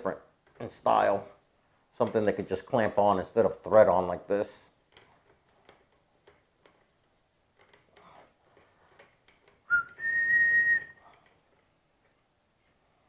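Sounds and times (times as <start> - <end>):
faint metal clicks and scrapes: 0.0 - 10.0, 10.8 - 13.0
person whistling: 9.7 - 11.0.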